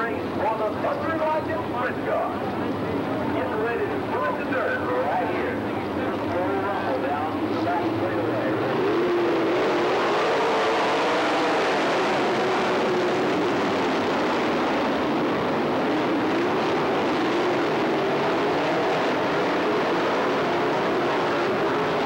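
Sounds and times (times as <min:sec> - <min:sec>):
race car engines droning: 0:00.0 - 0:22.0.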